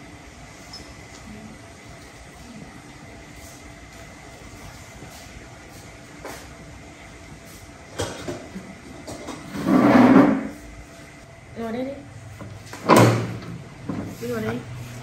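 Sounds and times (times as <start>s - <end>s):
chair scraping on tiled floor: 9.1s - 10.6s.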